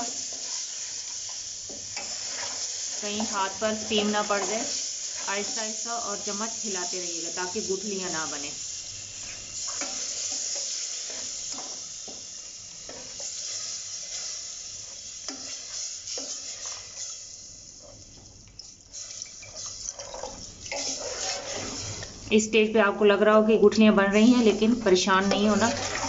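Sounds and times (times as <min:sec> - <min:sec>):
water sizzling in hot pot: 0:00.0 - 0:22.4, 0:23.6 - 0:26.0
steel ladle scraping pot: 0:18.9 - 0:22.1, 0:25.2 - 0:26.0.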